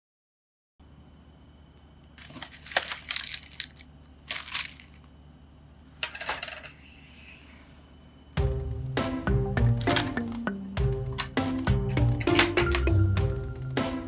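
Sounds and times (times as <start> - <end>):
music: 8.4 - 14.0
buttons clinking: 9.6 - 13.2.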